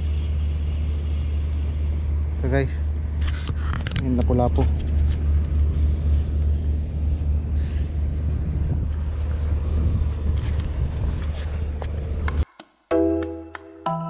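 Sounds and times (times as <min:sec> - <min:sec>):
wind buffeting microphone: 0:04.7 - 0:12.4.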